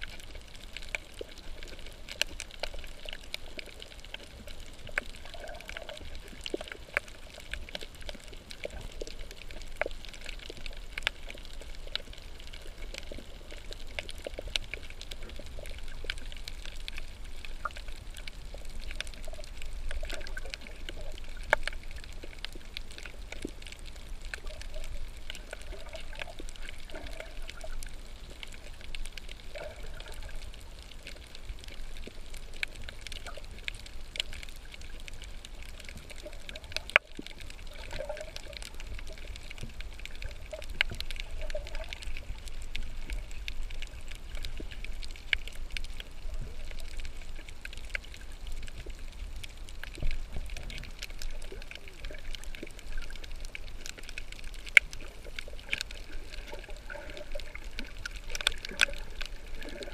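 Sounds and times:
water sloshing and trickling: 0:17.0 - 0:31.4, 0:49.9 - 0:59.9.

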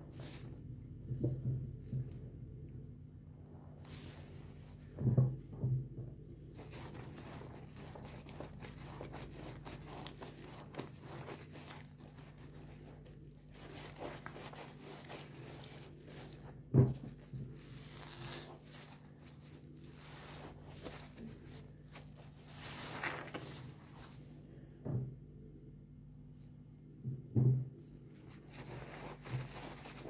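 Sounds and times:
sponge squishing in soapy water: 0:03.7 - 0:05.3, 0:06.4 - 0:24.4, 0:28.2 - 0:30.0
dull thumps: 0:13.6 - 0:17.8.

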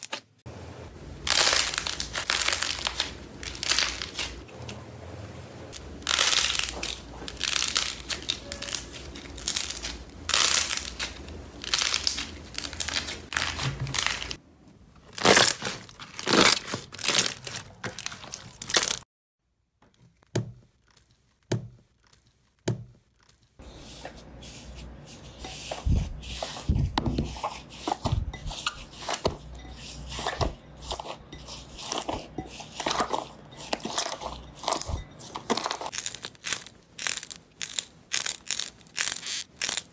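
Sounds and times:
slime crackling and popping: 0:35.9 - 0:39.9.

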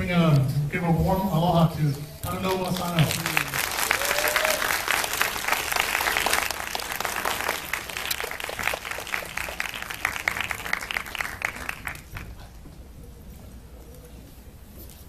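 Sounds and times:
audience applauding: 0:02.4 - 0:12.5.

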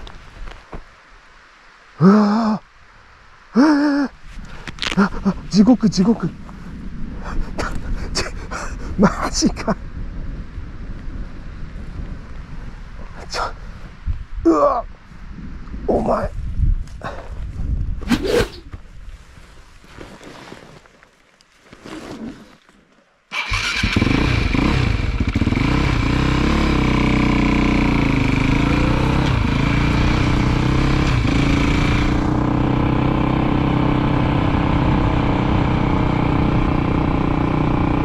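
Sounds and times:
motorcycle engine running: 0:23.4 - 0:38.0.

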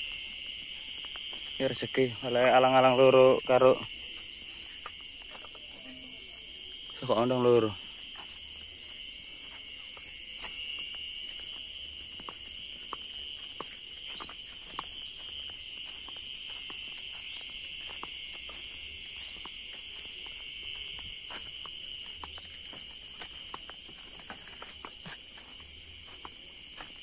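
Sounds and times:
crickets trilling: 0:00.0 - 0:27.0.

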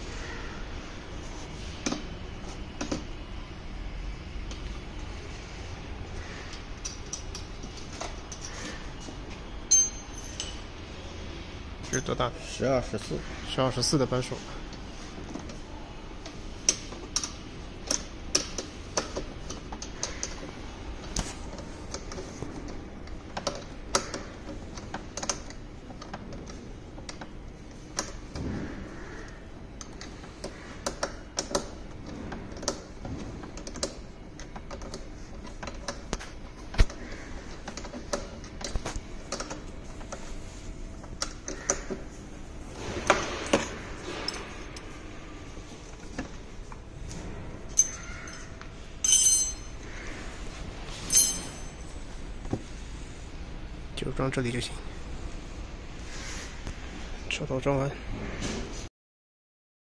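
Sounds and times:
spanner clinking against metal: 0:09.7 - 0:10.7, 0:47.8 - 0:49.9, 0:51.1 - 0:52.0.

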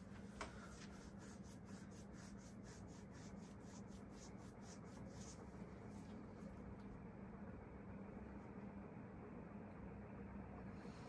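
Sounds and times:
ceiling fan motor hum: 0:00.0 - 0:11.0
soft raspy strokes: 0:00.6 - 0:06.1.

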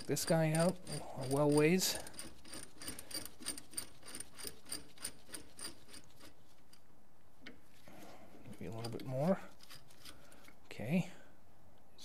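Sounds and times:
screw turning metallic ticks: 0:00.0 - 0:06.3, 0:08.5 - 0:10.4.

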